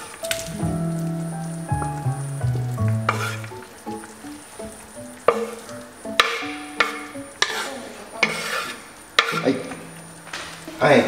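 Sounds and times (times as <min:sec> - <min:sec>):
soft background music: 0:00.0 - 0:11.0
wet splashes and scrapes: 0:02.8 - 0:03.6.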